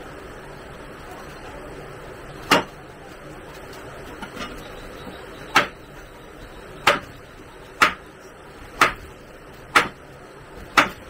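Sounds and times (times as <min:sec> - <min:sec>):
sharp knocks: 0:06.8 - 0:07.1, 0:07.8 - 0:08.0, 0:10.8 - 0:11.0.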